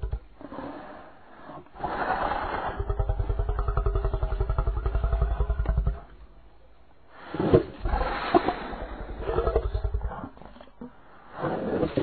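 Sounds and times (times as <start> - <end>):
deep monster growl: 1.8 - 6.2.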